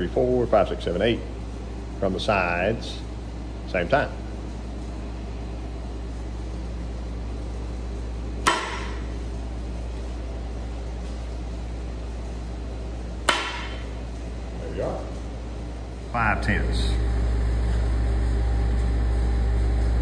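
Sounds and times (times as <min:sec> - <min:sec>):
steady low hum: 0:00.0 - 0:20.0
hammer striking steel crankshaft: 0:08.4 - 0:09.0, 0:13.2 - 0:13.9.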